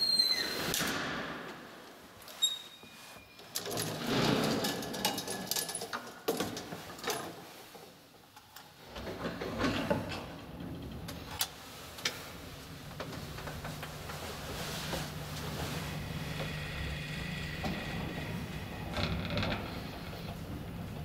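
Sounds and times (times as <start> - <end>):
lift drive humming: 12.6 - 21.0.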